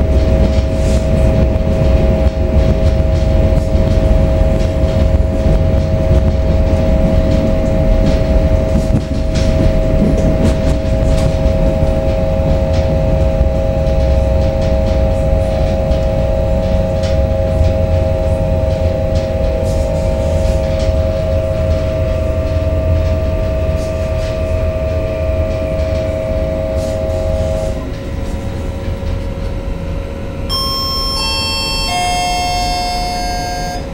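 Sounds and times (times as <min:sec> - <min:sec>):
traction motor whine: 0:00.0 - 0:33.9
train wheels rumbling on track: 0:00.0 - 0:33.9.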